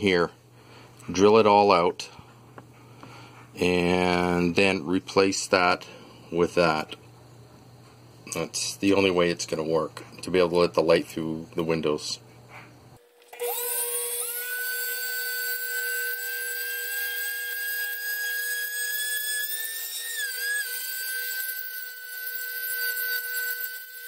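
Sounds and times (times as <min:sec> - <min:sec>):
rotary hobby drill whining: 0:13.0 - 0:24.0.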